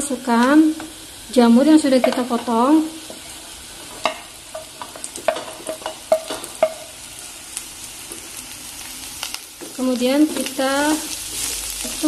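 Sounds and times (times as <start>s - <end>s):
mushrooms sizzling in pot: 0.0s - 12.0s
spatula knocking and scraping pot: 2.0s - 6.9s.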